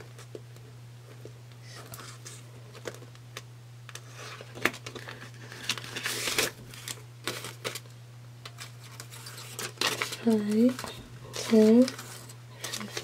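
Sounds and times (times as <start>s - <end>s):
plastic envelope crinkling: 1.7s - 7.9s, 8.5s - 13.0s
paper bills rustling: 8.6s - 13.0s.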